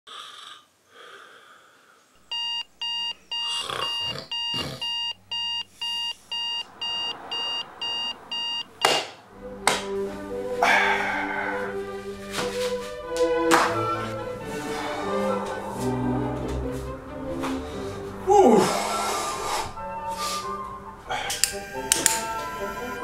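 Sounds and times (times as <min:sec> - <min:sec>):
digital alarm clock beeping: 0:02.3 - 0:09.0, 0:21.5 - 0:22.7
music: 0:09.3 - 0:23.0.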